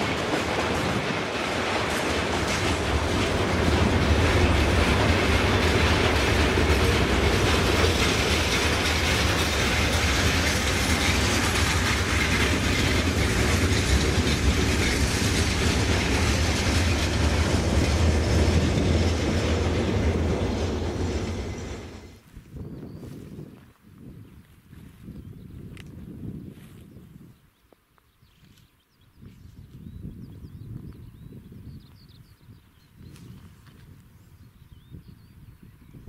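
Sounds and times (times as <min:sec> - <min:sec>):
freight train wagons rolling: 0:00.0 - 0:22.2.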